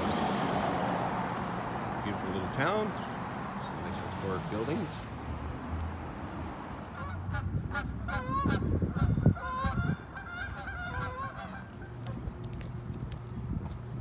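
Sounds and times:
geese honking: 6.9s - 12.3s.

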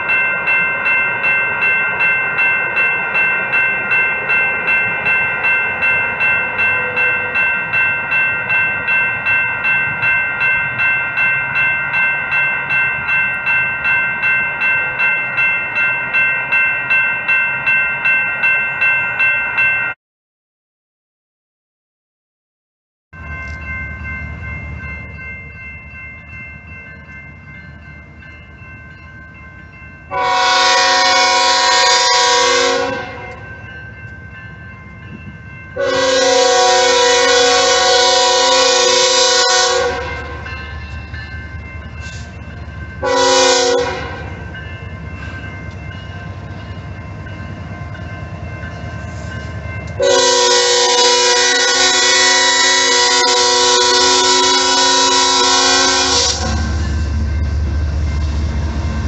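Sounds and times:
low rumble of locomotives: 23.2s - 59.0s
train air horn blasts: 30.1s - 33.4s, 35.8s - 40.4s, 43.0s - 44.4s, 50.0s - 56.9s.

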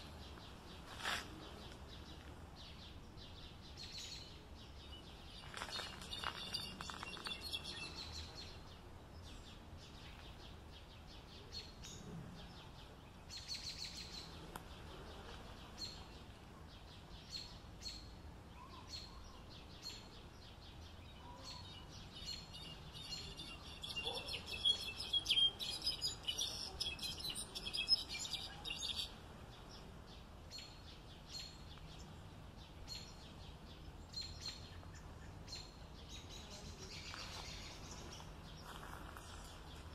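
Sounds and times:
faint background hiss: 0.0s - 39.9s
songbird twittering: 3.3s - 8.6s, 21.1s - 29.2s.

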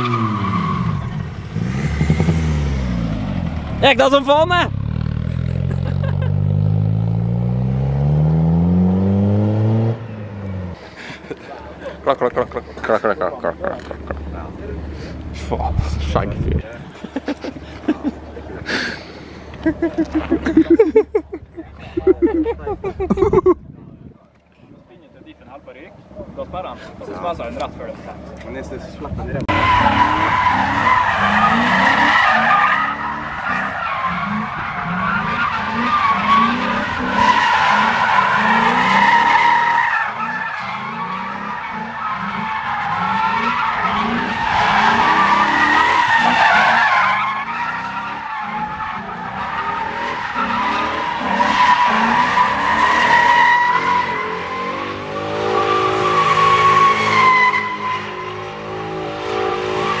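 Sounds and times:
car engine at high revs: 0.0s - 10.8s, 29.4s - 60.0s.

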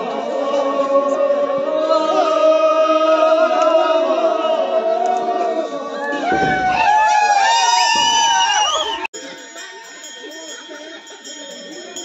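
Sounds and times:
group of voices chanting: 0.0s - 6.8s.

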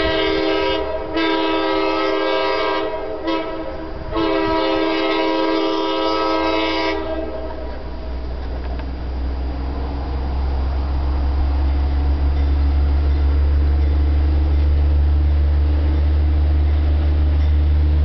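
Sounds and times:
locomotive horn blasts: 0.0s - 7.8s
low rumble: 6.3s - 18.0s.

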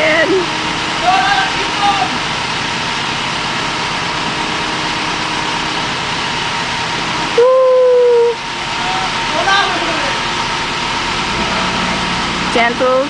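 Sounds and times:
backhoe engine running: 0.0s - 13.0s
held falling tone: 7.3s - 8.4s, 11.1s - 13.0s.

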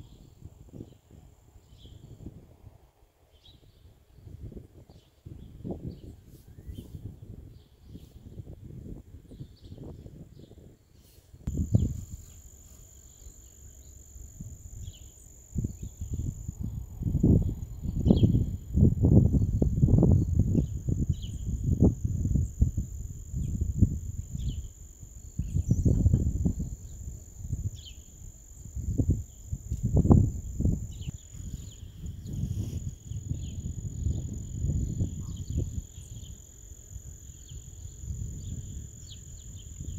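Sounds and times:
wind buffeting microphone: 0.0s - 2.8s, 3.4s - 10.8s, 11.4s - 12.4s, 14.3s - 36.5s, 37.3s - 39.9s
faint high-pitched whine: 0.0s - 39.9s
faint high chirps: 11.5s - 18.5s.

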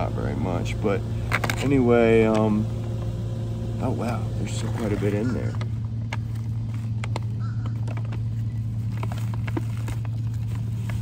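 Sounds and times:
vehicle engine idling: 0.0s - 11.0s
foil bag crinkling: 6.0s - 11.0s.

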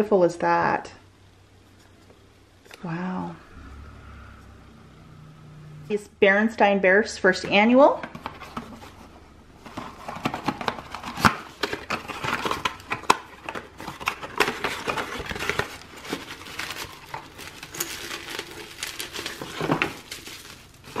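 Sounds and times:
plastic wrapping crinkling: 9.6s - 21.0s.

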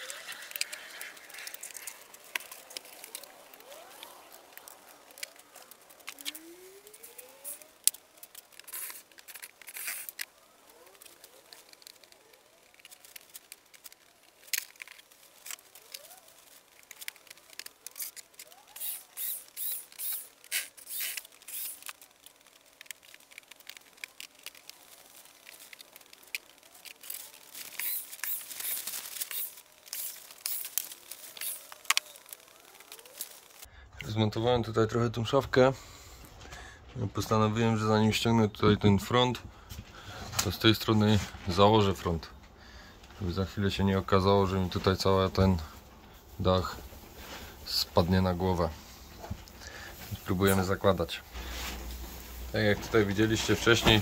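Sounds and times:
scraping and rustling: 0.0s - 33.7s, 44.8s - 54.0s
cordless drill driving screws: 18.8s - 22.0s, 27.6s - 32.1s.

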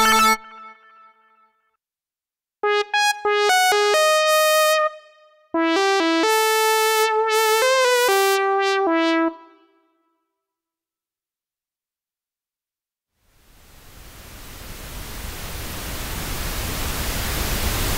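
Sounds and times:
synthesizer lead melody: 0.0s - 1.3s, 2.6s - 9.8s.

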